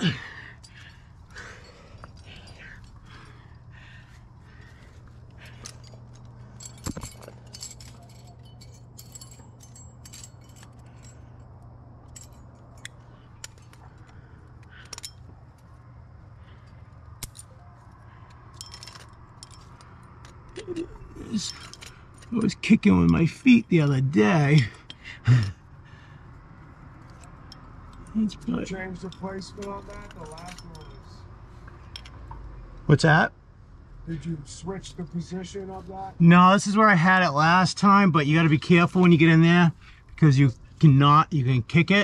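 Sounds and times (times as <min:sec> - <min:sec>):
climbing gear clinking: 0:00.0 - 0:32.4, 0:35.2 - 0:42.0
steady low hum: 0:00.0 - 0:42.0.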